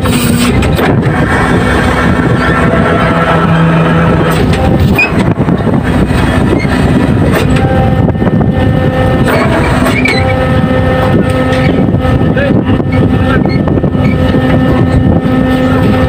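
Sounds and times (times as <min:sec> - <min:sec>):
boat engines and deck machinery: 0:00.0 - 0:16.0
knocks and clanks: 0:00.0 - 0:16.0
winch hoisting net: 0:00.0 - 0:16.0.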